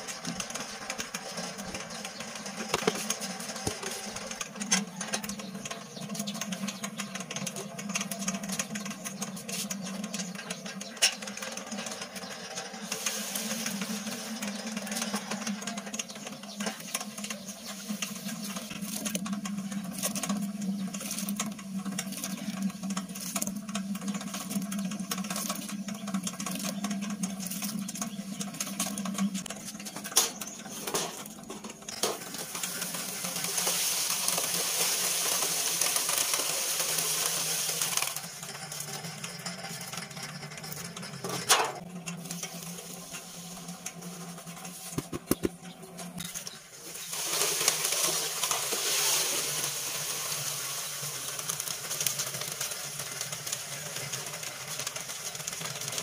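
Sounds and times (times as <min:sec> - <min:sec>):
cement mixer humming: 0:00.0 - 0:56.0
load rattling and churning: 0:00.0 - 0:56.0
water pouring: 0:32.1 - 0:38.5, 0:46.3 - 0:53.6.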